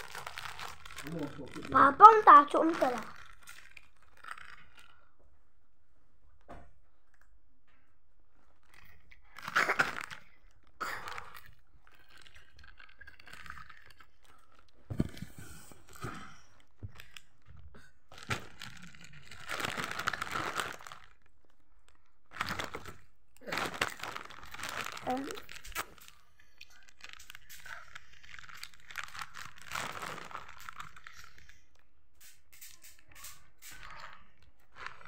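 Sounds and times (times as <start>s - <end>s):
packaging crinkling: 0.0s - 5.0s, 8.6s - 17.4s, 18.1s - 31.6s, 33.7s - 35.0s
person crunching a snack: 2.8s - 5.0s, 8.7s - 14.8s, 18.1s - 31.7s.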